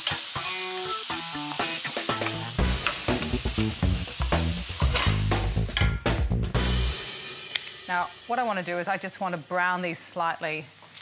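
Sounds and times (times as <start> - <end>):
onion sizzling in a frying pan: 0.0 - 5.8, 6.7 - 11.0
background music with bass: 2.1 - 7.4.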